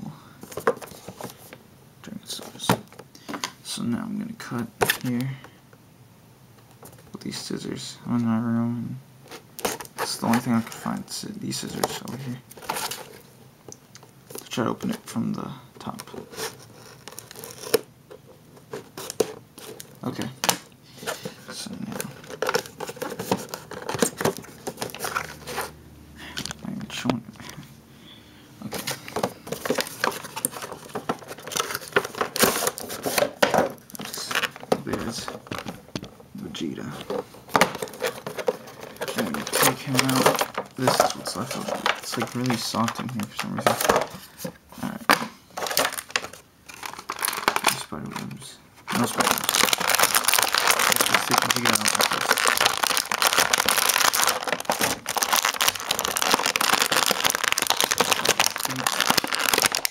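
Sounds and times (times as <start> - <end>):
cardboard box and plastic packaging opened: 9.3 - 13.3, 15.8 - 25.7, 28.6 - 36.0, 36.6 - 48.3, 48.9 - 59.9.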